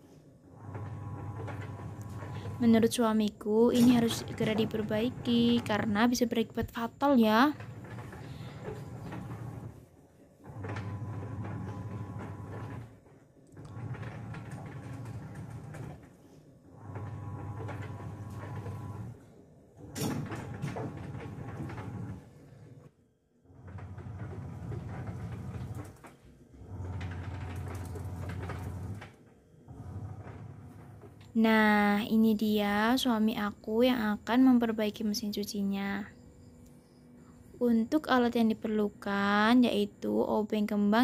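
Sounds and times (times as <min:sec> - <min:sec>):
washing machine motor agitating: 0:00.5 - 0:16.0, 0:16.7 - 0:19.2, 0:19.8 - 0:22.8, 0:23.4 - 0:32.1.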